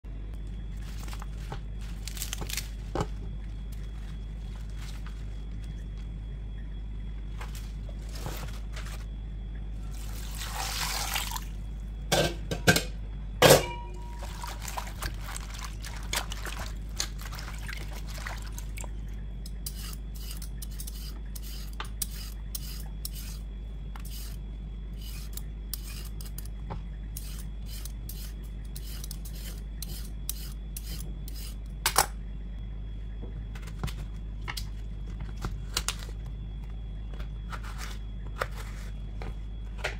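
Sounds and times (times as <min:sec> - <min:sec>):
low hum: 0:00.0 - 0:39.9
vegetable peeler scraping: 0:19.5 - 0:24.4, 0:25.0 - 0:26.5, 0:27.2 - 0:31.6.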